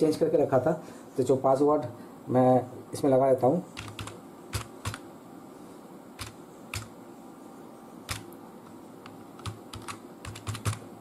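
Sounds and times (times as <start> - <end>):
computer keyboard key clicks: 3.8 - 5.0, 6.2 - 6.9, 9.4 - 10.8.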